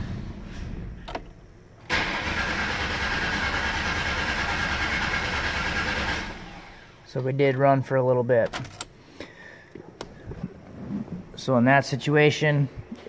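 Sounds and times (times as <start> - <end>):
car engine starting and running: 0.0 - 7.1.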